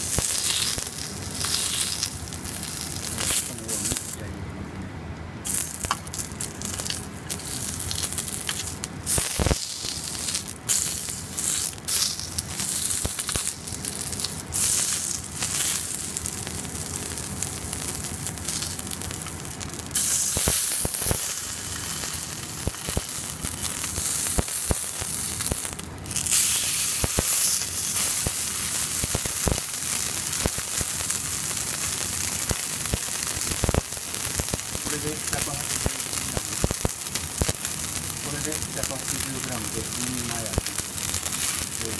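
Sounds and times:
meat sizzling in a frying pan: 0:00.0 - 0:04.2, 0:05.4 - 0:41.9.

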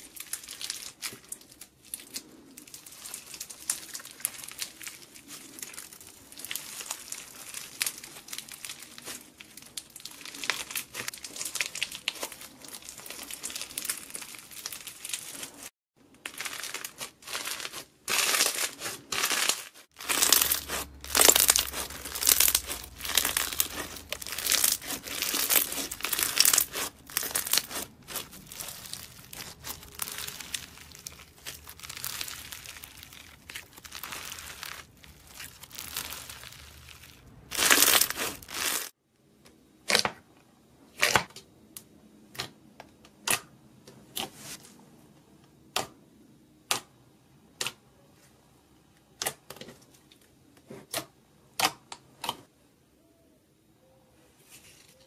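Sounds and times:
bead slime crackling: 0:00.0 - 0:39.0.

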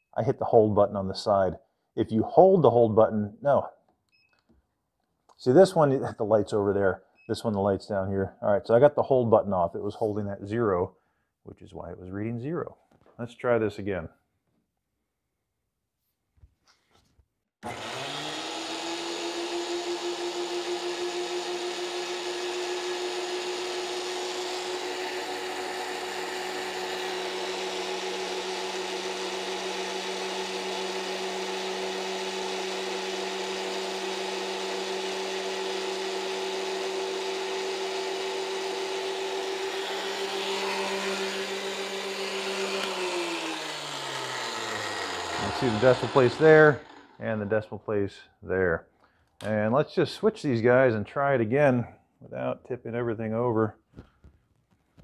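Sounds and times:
thickness planer motor humming: 0:17.6 - 0:47.5.

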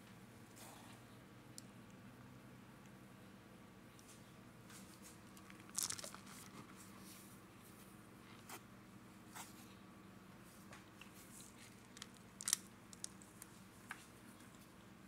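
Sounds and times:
cornstarch crunching: 0:05.3 - 0:06.8, 0:11.4 - 0:13.5.

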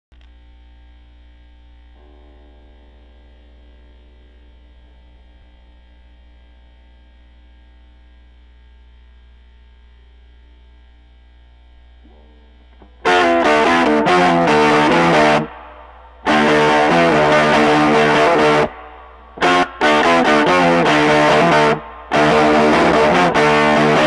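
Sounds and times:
amplifier hum and buzz: 0:00.1 - 0:24.0
distorted electric guitar riff: 0:01.1 - 0:24.0
faint guitar notes ringing: 0:02.0 - 0:06.6, 0:11.8 - 0:24.0.

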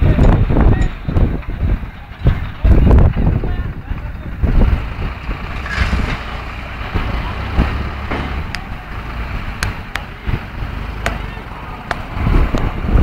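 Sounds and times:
diesel tractor engine under load: 0:00.0 - 0:13.0
sand pouring: 0:05.6 - 0:06.5.

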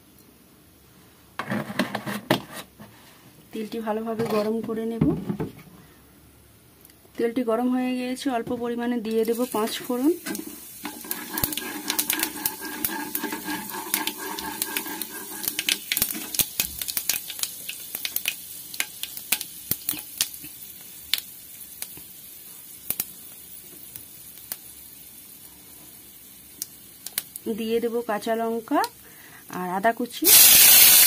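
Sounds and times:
seeds sizzling and popping in oil: 0:09.0 - 0:31.0.

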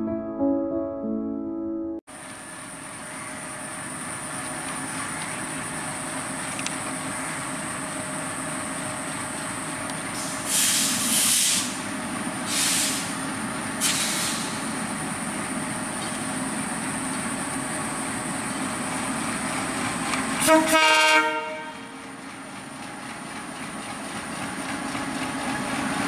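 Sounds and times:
diesel locomotive engine running: 0:02.1 - 0:26.0
short loud hisses: 0:10.2 - 0:11.8, 0:12.4 - 0:13.2, 0:13.8 - 0:14.7.

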